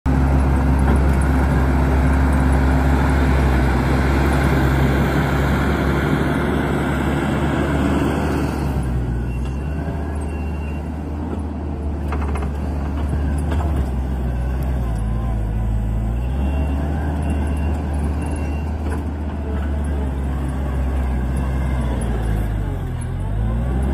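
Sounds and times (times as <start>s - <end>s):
diesel engine running: 0.1s - 23.9s
faint short high beeps: 9.1s - 11.0s, 14.2s - 19.0s.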